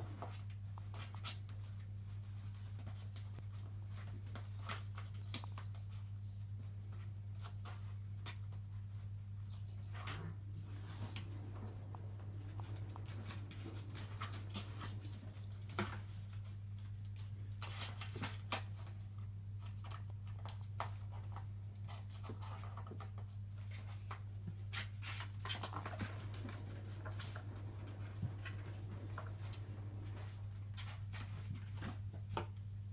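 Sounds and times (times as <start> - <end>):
kittens' paws tapping on floor: 9.9 - 32.9
steady low hum: 10.4 - 16.7, 25.7 - 32.0.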